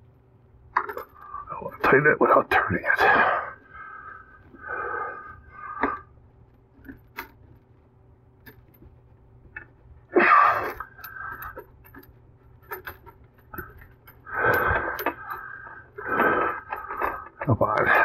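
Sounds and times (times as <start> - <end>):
man breathing out hard: 14.3 - 17.2.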